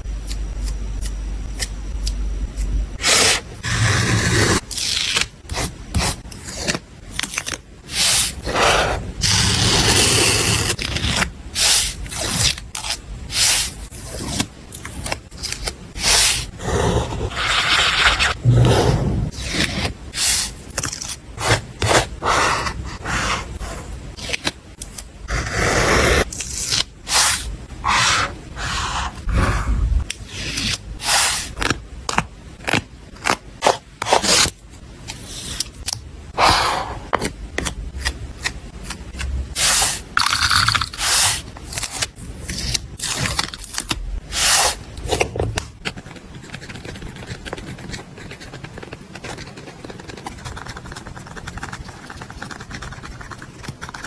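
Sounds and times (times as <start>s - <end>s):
paper and tape scraping: 39.6s - 44.8s.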